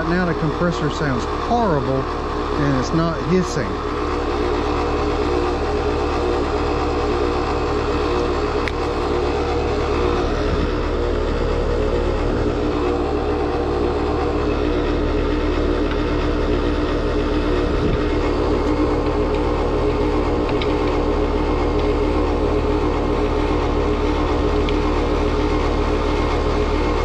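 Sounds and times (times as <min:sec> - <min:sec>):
heat pump compressor mechanical noise: 0:00.0 - 0:27.0.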